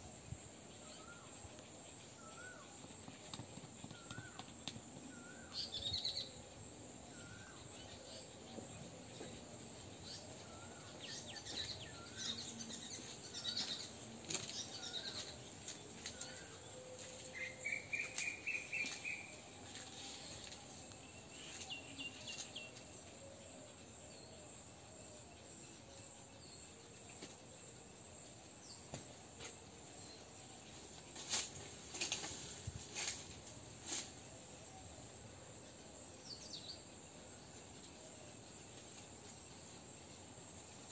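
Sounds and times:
birds chirping: 9.2 - 22.8.

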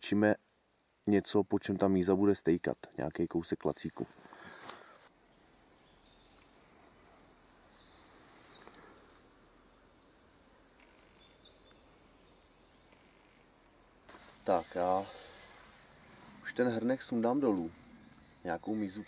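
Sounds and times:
faint bird chirps: 5.0 - 13.9, 15.8 - 19.0.

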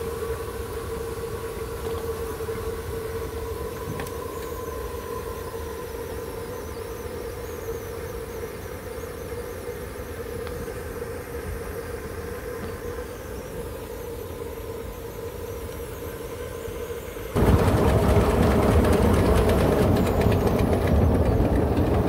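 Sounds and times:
steam boiler whistling hum: 0.0 - 22.0
low rumble: 17.4 - 22.0.

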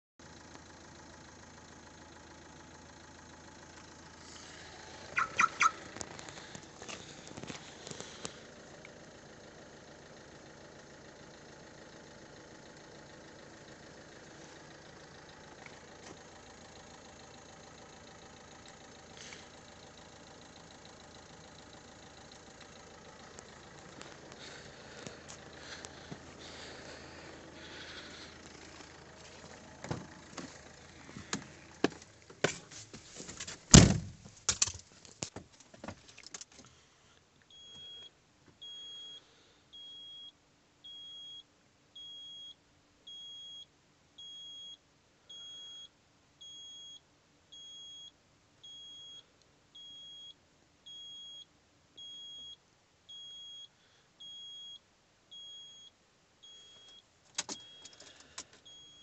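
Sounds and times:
dashboard warning chime beeping: 5.1 - 5.9, 37.5 - 39.2, 39.8 - 41.4, 42.0 - 47.0, 47.6 - 54.8, 55.4 - 59.0
van door thunk: 33.7 - 34.2.

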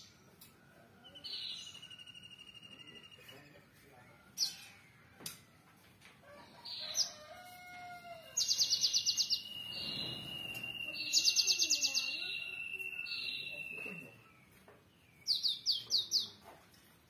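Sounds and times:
bird singing rapid high trills: 1.0 - 3.6, 8.4 - 16.3
thin steady high tone: 9.1 - 14.3.

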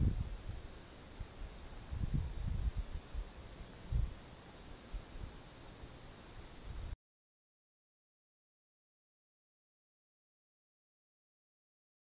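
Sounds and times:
wind bumps on microphone: 0.0 - 0.6, 1.2 - 3.3, 3.9 - 4.2
insect chorus drone: 0.0 - 7.0.

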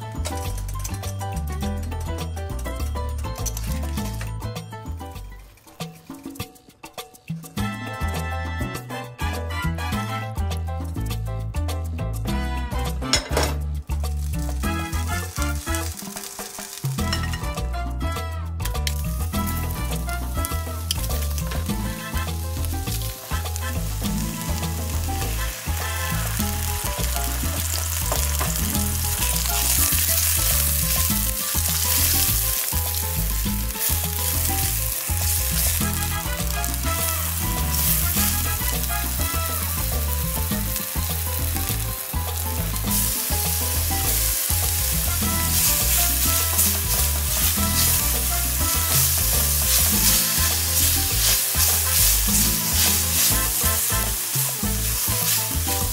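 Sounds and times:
background music with steady beat: 0.0 - 55.9
sausage sizzling in oil: 3.3 - 6.6, 12.3 - 55.9
spatula stirring in pan: 19.4 - 55.9.

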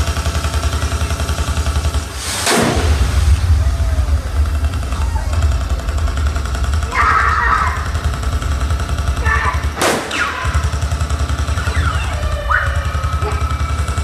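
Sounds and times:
steady low rumble: 1.5 - 14.0
sharp bang: 2.2 - 11.0.

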